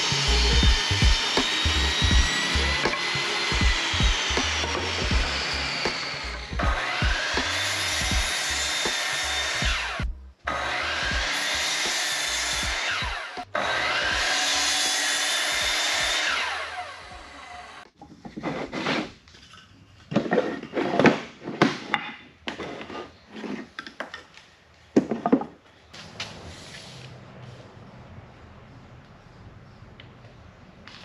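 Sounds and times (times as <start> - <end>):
miter saw cutting wood: 0.0 - 17.9.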